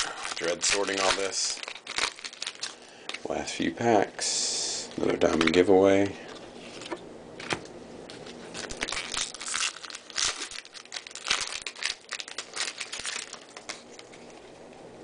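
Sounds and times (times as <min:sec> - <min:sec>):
foil wrapper tearing and crinkling: 0:00.0 - 0:03.2, 0:08.3 - 0:14.4.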